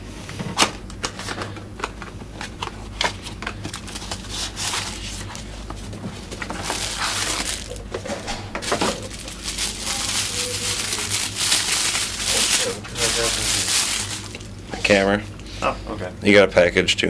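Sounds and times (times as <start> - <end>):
plastic bag crinkling: 3.1 - 8.0, 8.6 - 14.6.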